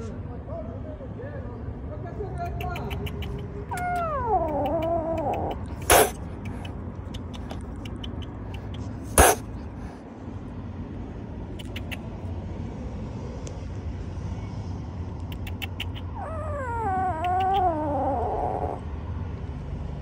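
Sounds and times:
kitten hissing: 2.6s - 10.0s, 11.6s - 12.1s, 15.2s - 18.8s
kitten meowing: 3.7s - 6.7s, 9.2s - 9.4s, 15.4s - 18.8s.

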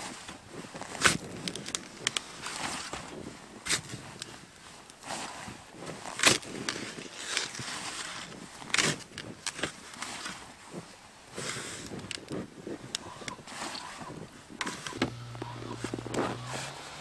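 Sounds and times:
snow shovel scraping packed snow: 0.0s - 17.0s
low engine hum: 14.8s - 17.0s.

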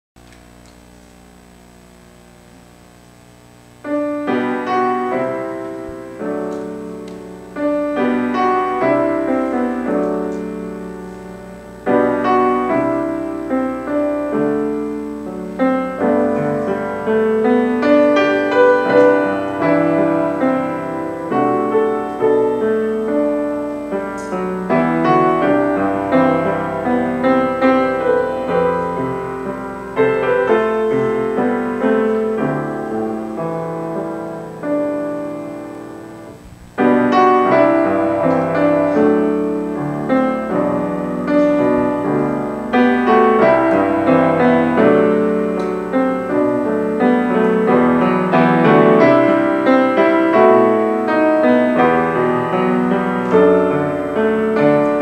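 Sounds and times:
solo piano playing calm chords: 3.6s - 55.0s.

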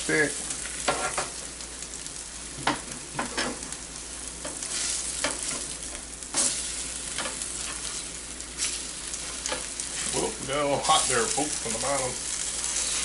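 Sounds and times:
eggs sizzling in butter: 0.0s - 13.0s
spatula scraping griddle: 0.8s - 1.4s, 4.4s - 13.0s.

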